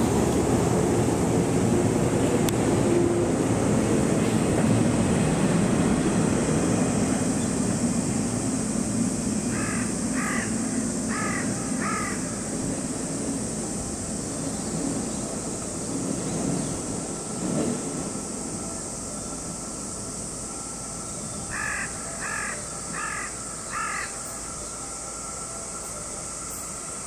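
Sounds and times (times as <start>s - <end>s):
locomotive engines droning: 0.0s - 27.0s
crow cawing: 9.5s - 12.3s, 21.5s - 24.2s.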